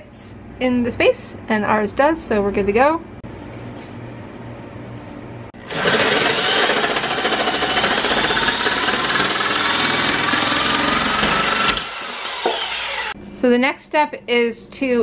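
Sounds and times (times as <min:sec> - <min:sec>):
reciprocating saw cutting: 0:05.6 - 0:13.2.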